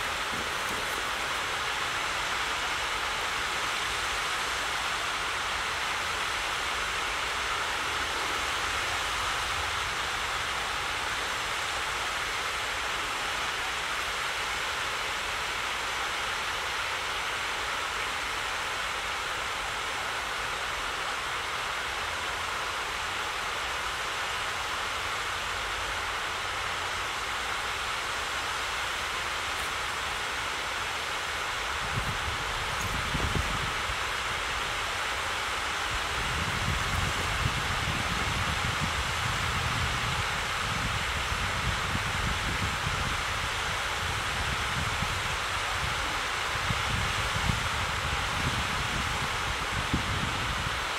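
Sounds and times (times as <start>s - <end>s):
flowing water rushing: 0.0s - 50.9s.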